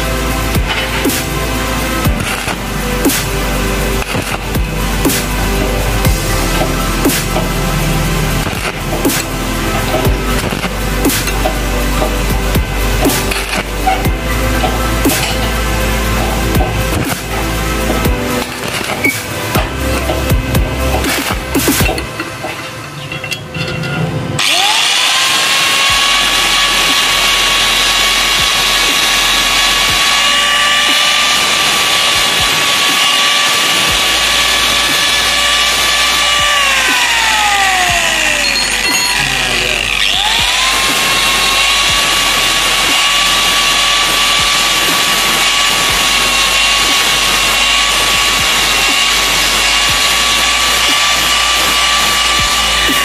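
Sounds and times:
angle grinder whine: 0:00.0 - 0:53.0
disc grinding metal chain: 0:22.0 - 0:53.0.

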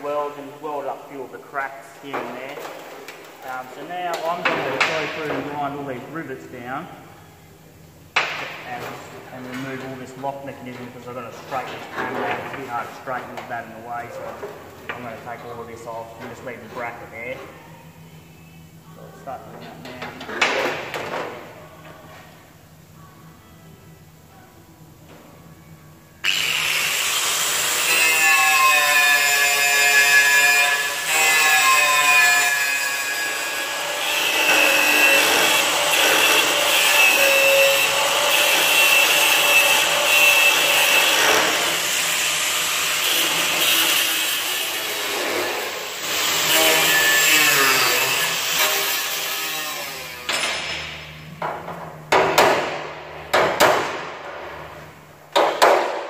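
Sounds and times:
angle grinder grinding metal: 0:26.2 - 0:51.0.

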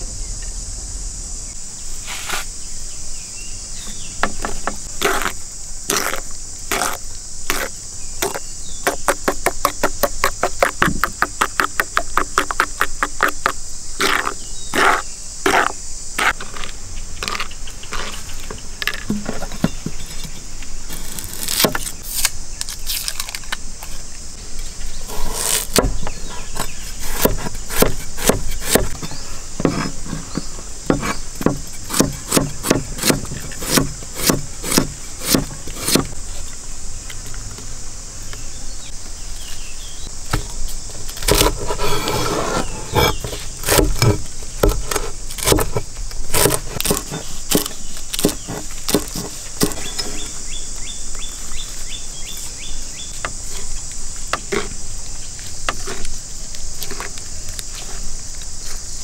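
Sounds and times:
high-pitched insect drone: 0:00.0 - 0:59.0
sharp knocks: 0:29.6 - 0:36.1.

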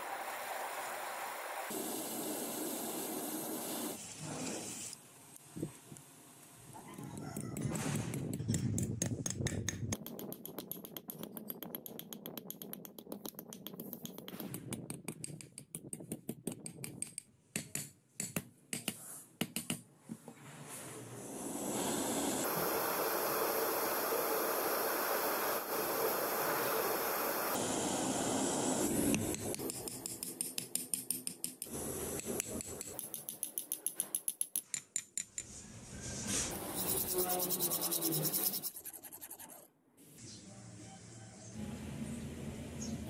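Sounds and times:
blowtorch flame hissing: 0:00.0 - 0:05.0, 0:21.1 - 0:29.7.

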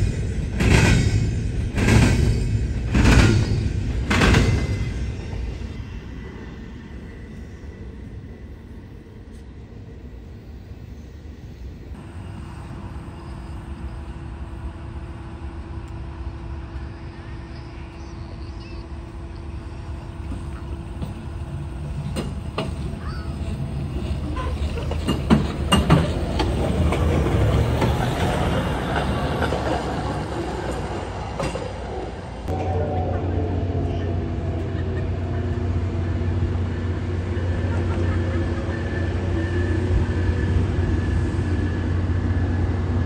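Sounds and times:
rail wheel clicks: 0:00.0 - 0:06.4, 0:20.2 - 0:33.3
truck rumbling along rail track: 0:00.0 - 0:43.0.

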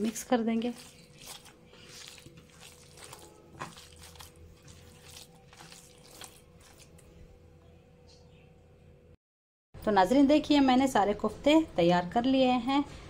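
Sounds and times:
hand squishing wet meat mixture: 0:00.0 - 0:07.3.

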